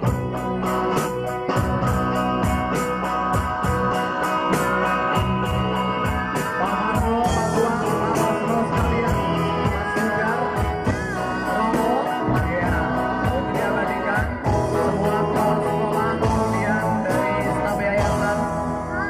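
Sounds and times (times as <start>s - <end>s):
drum kit beat: 0.0s - 19.0s
rock band playing: 0.0s - 19.0s
boy singing into a microphone: 6.4s - 19.0s.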